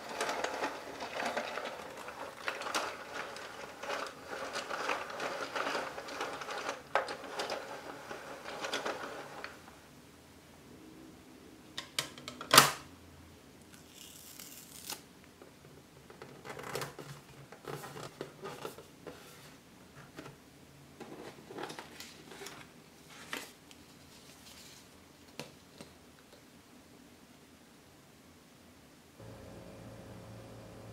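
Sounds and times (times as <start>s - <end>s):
paper booklets handled: 21.4s - 26.0s.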